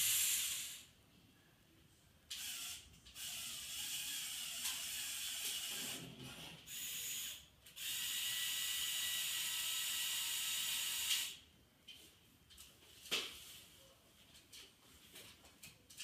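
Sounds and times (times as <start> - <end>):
toy crane motors whirring: 0.0 - 0.9, 2.3 - 11.4.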